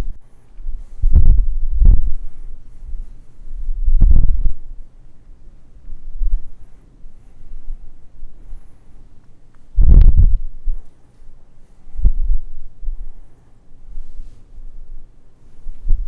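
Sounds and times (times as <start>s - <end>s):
dull low thumps: 0.0s - 4.8s, 5.9s - 6.6s, 9.7s - 10.9s, 11.9s - 13.2s, 15.8s - 16.0s
faint room hum: 0.0s - 16.0s.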